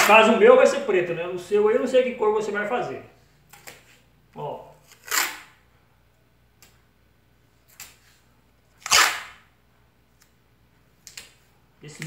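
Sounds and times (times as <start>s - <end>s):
masking tape ripping off roll: 4.8s - 5.6s, 8.8s - 9.5s.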